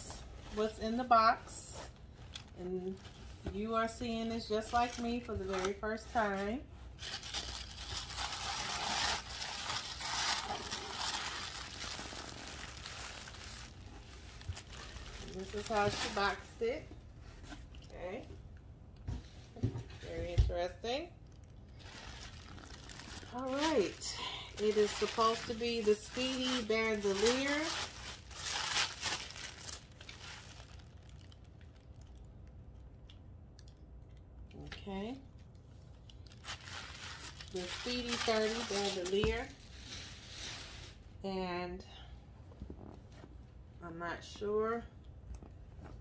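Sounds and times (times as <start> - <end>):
tissue paper rustling and crinkling: 0.1 - 16.6, 21.7 - 31.4, 36.3 - 41.1.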